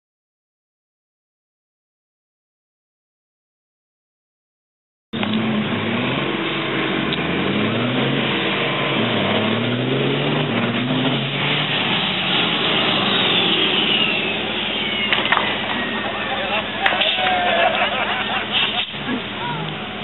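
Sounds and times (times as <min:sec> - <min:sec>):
diesel truck engines accelerating: 0:05.2 - 0:20.0
high whistle falling in pitch: 0:13.0 - 0:16.2.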